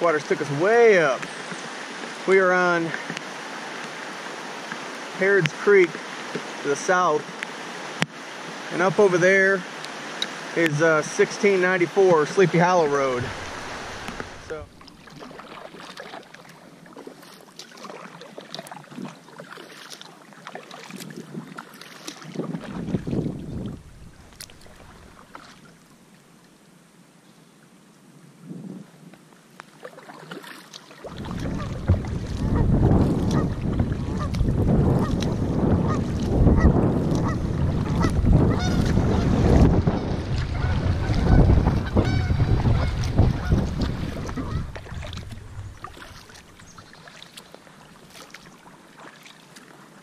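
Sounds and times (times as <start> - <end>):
kayak paddle strokes: 0.0 - 26.3, 29.6 - 50.0
water dripping off paddle: 9.8 - 25.9, 29.6 - 49.8
wind buffeting microphone: 12.9 - 14.8, 22.2 - 25.2, 31.1 - 47.0
geese honking: 31.5 - 31.8, 35.8 - 39.5, 40.3 - 44.9.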